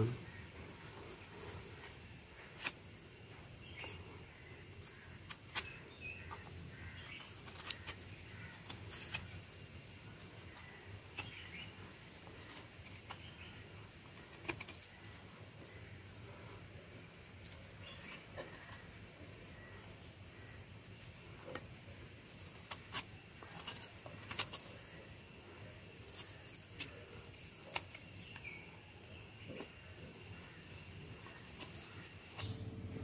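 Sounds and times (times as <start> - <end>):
faint bird chirps: 0.0 - 21.7.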